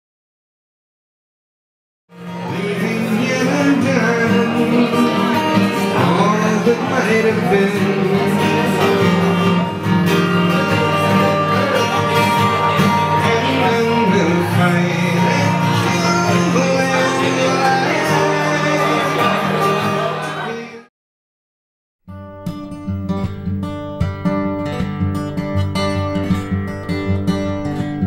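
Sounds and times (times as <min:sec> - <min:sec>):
acoustic guitar: 0:02.1 - 0:20.9, 0:22.1 - 0:28.0
man singing: 0:02.3 - 0:20.9.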